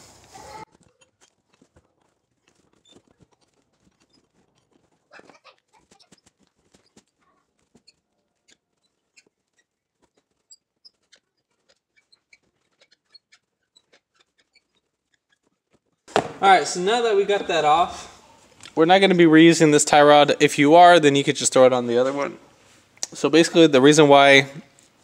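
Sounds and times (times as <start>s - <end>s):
handling noise: 0.0s - 18.8s.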